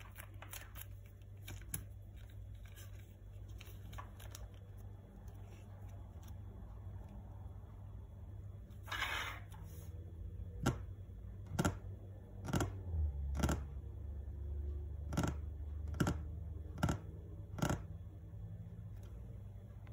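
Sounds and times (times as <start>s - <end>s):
fingers tapping on a table: 15.1s - 16.2s.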